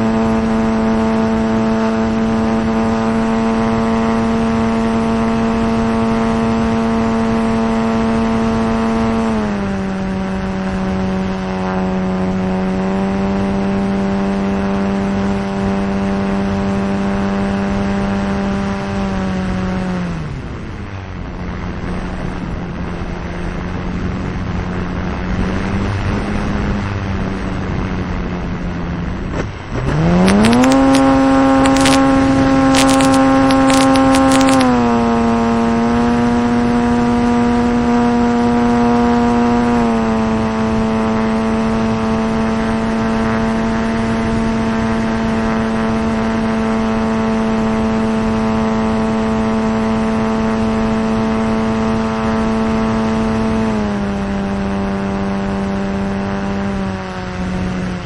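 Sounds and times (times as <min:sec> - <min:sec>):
model plane engine and propeller: 0:00.0 - 0:58.0
sharp crackling clicks: 0:29.3 - 0:34.8.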